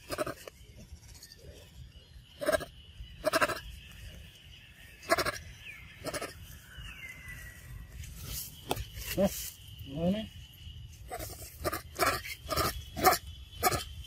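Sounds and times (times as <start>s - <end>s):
monkey calls: 2.4s - 3.6s, 5.0s - 5.4s, 6.0s - 6.4s, 11.1s - 14.0s.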